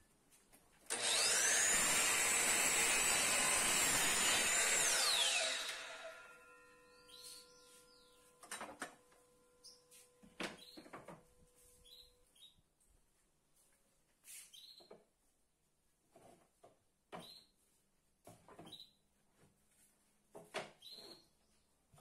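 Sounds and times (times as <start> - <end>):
miter saw whining: 0.9 - 7.0
saw blade cutting wood: 0.9 - 7.6.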